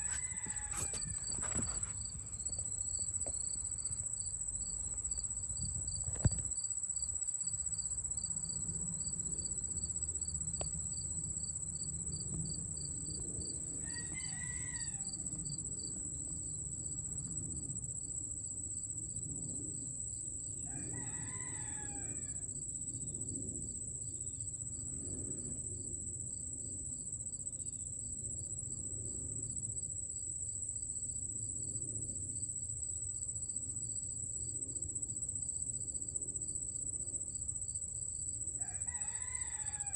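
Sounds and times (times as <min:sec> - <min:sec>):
rooster crowing: 0:00.0 - 0:02.0, 0:13.8 - 0:15.2, 0:20.7 - 0:22.5, 0:38.6 - 0:39.9
insects droning and chirping: 0:00.0 - 0:39.9.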